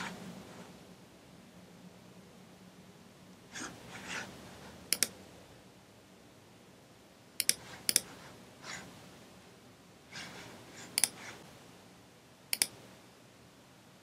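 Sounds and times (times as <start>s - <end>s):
soft noises: 0.0s - 0.9s, 3.5s - 5.2s, 7.4s - 11.8s
computer mouse clicking: 4.9s - 5.2s, 7.4s - 8.2s, 10.2s - 11.4s, 12.5s - 12.8s.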